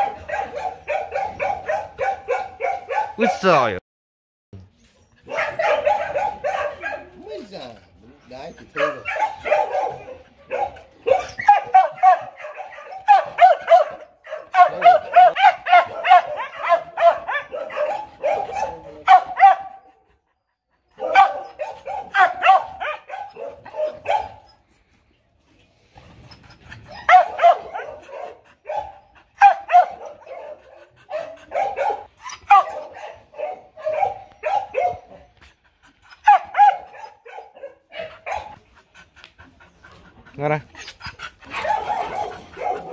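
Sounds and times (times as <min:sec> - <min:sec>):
dog barking: 0:00.0 - 0:03.3, 0:05.2 - 0:07.2, 0:08.8 - 0:19.9, 0:21.0 - 0:24.5, 0:27.0 - 0:35.3, 0:36.2 - 0:38.6, 0:41.5 - 0:42.9.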